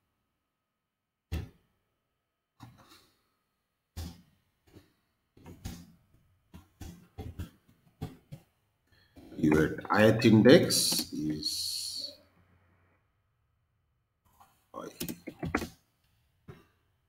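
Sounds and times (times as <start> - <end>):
faint keyboard typing: 14.3 - 15.7.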